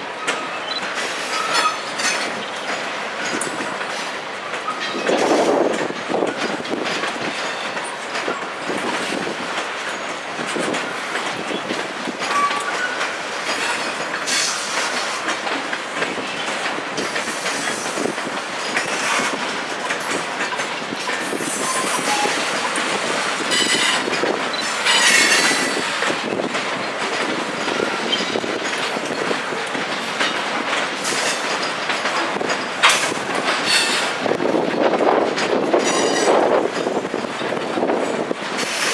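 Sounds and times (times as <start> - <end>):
train wheels clacking on rails: 0.0 - 38.9.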